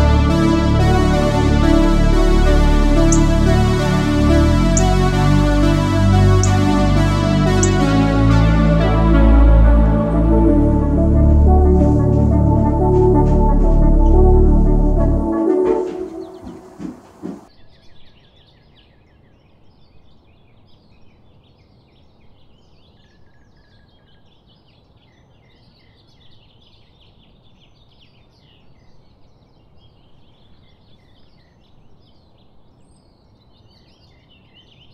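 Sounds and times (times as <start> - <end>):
background music: 0.0 - 17.5
small birds chirping and singing: 2.5 - 8.6, 15.6 - 16.9, 17.5 - 34.9.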